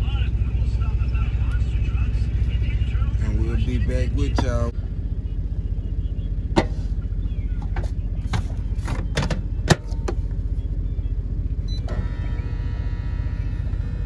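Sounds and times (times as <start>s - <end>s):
steady low rumble: 0.0s - 14.0s
microwave humming: 8.9s - 14.0s
keypad beeps: 11.7s - 12.6s.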